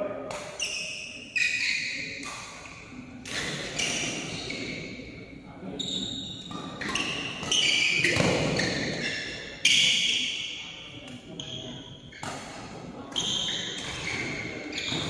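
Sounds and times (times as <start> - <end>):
racket striking shuttlecock: 0.3 - 0.8, 1.6 - 4.2, 12.2 - 14.4
shoes squeaking on court: 0.3 - 5.2, 5.8 - 15.0.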